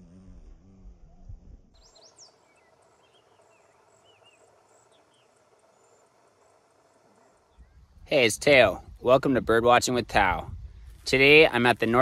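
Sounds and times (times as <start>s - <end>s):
insects ticking: 1.8s - 8.3s.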